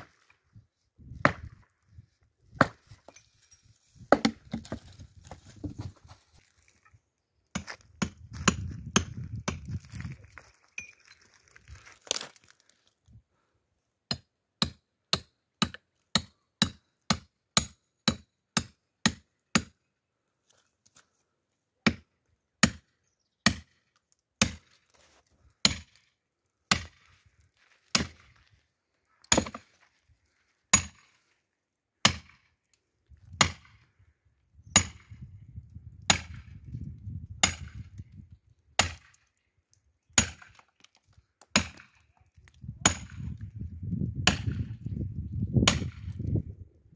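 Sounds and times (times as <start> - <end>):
axe chopping firewood: 0.0 - 0.4, 1.0 - 1.7, 2.5 - 3.2, 4.0 - 6.2, 7.5 - 9.8, 14.1 - 19.8, 21.8 - 23.8, 24.4 - 24.9, 25.6 - 26.1, 26.7 - 27.2, 27.8 - 28.5, 29.2 - 29.7, 30.7 - 31.2, 32.0 - 32.5, 33.2 - 33.8, 34.8 - 35.2, 35.9 - 38.0, 38.8 - 39.3, 40.1 - 44.8, 45.5 - 46.3.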